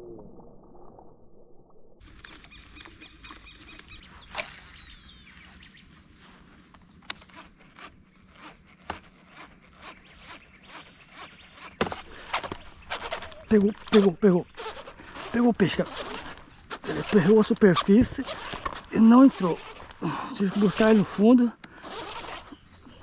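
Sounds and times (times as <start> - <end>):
sharp clicks: 6.7 - 8.1.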